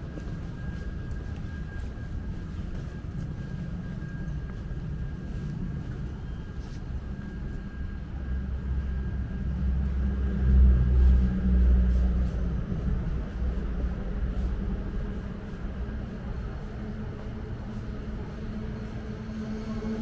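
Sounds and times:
passing vehicle engine rumble: 0:06.8 - 0:20.0.

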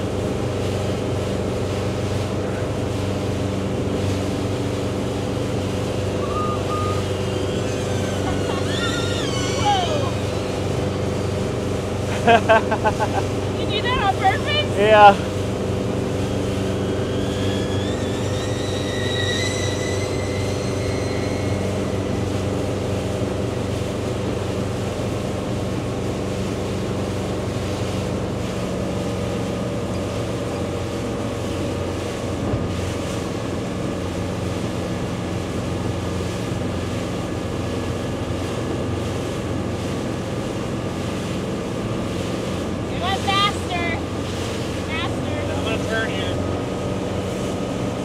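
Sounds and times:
motorboat engine hum: 0:00.0 - 0:48.0
rush of water and air: 0:00.0 - 0:48.0
faint high whine: 0:06.0 - 0:11.0, 0:16.1 - 0:23.1.

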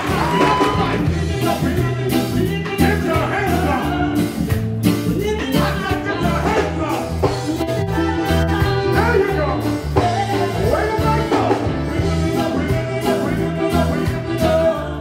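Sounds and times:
person singing: 0:00.0 - 0:04.4, 0:05.0 - 0:15.0
drum strokes: 0:00.0 - 0:09.1
bass line: 0:00.0 - 0:15.0
reggae band playing: 0:00.0 - 0:15.0.

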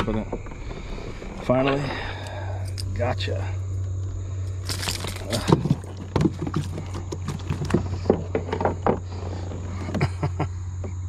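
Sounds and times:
low hum: 0:00.0 - 0:11.0
fish and lure knocking on hull: 0:05.1 - 0:09.0.

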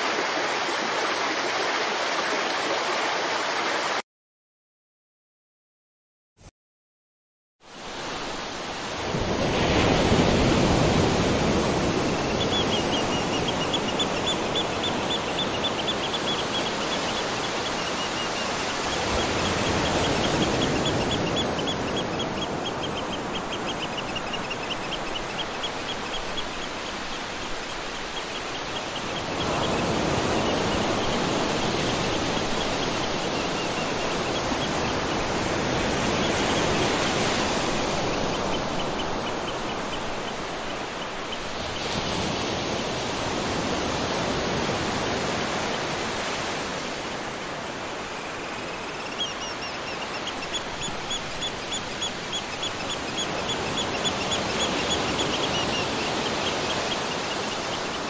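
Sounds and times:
waterfall rushing: 0:00.0 - 0:04.0.

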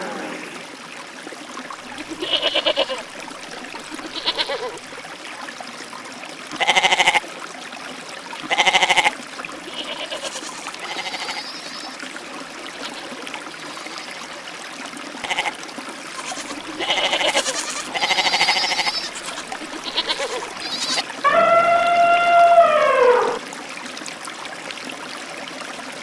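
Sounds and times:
goats bleating: 0:01.9 - 0:04.9, 0:06.6 - 0:07.2, 0:08.5 - 0:09.1, 0:09.7 - 0:11.8, 0:15.2 - 0:22.5.

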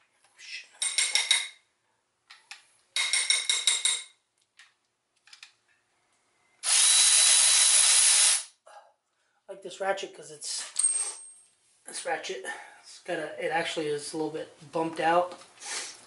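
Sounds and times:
electric ratchet whirring and clicking: 0:06.6 - 0:08.5
loud steady hiss: 0:06.6 - 0:08.6.

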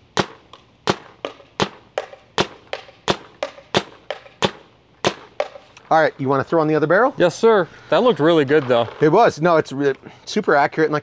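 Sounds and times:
paintball marker firing pops: 0:00.2 - 0:05.8.

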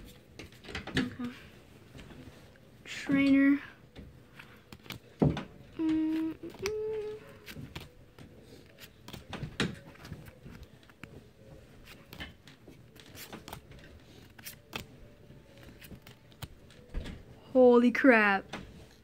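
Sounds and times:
trading cards flipped by hand: 0:04.3 - 0:16.9.

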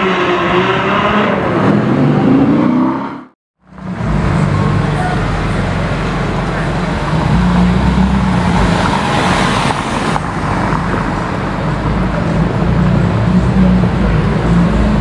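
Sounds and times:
passing traffic rush: 0:00.0 - 0:15.0
car engine low rumble: 0:03.6 - 0:15.0.

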